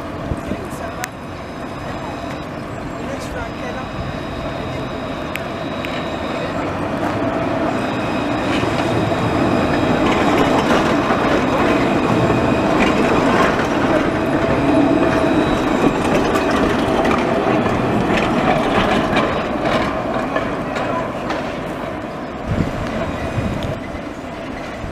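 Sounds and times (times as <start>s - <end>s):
steady high tone: 0.0s - 22.4s
tram wheels running on rails: 0.0s - 24.9s.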